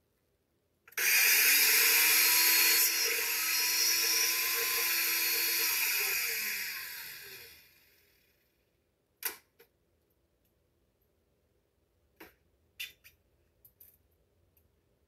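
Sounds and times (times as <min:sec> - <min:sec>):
blender motor whining: 0:01.0 - 0:08.3.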